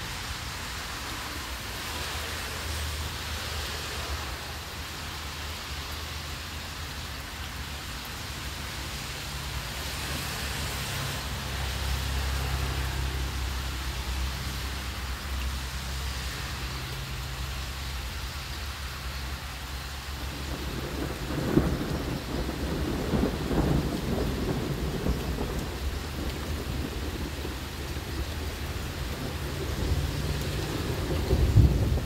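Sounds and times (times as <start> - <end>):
light rain on pavement: 0.0 - 32.0
rolling thunder: 20.2 - 32.0.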